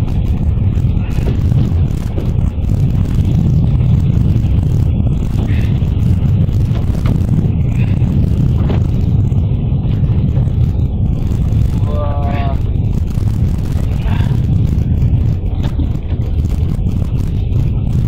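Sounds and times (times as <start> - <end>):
boat engine rumbling: 0.0 - 18.0.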